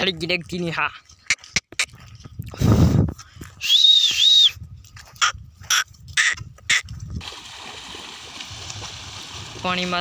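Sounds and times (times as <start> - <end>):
loud piercing whistle: 3.6 - 4.6.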